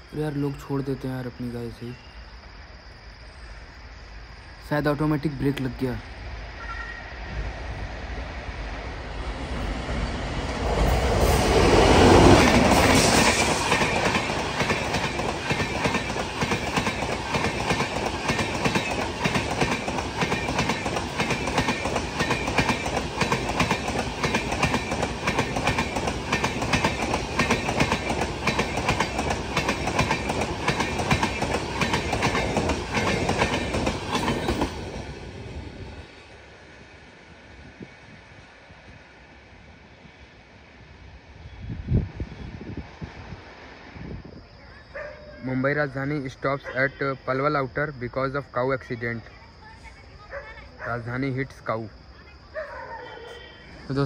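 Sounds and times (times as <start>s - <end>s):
train passing at speed: 3.4s - 54.0s
train wheels clacking over rail joints: 12.1s - 34.9s.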